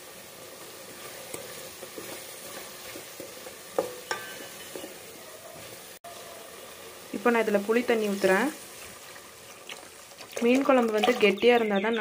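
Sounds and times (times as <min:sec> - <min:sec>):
paste sizzling in oil: 0:00.0 - 0:11.6
spatula scraping pot: 0:00.9 - 0:05.8
spatula clinking against pot: 0:03.8 - 0:05.0.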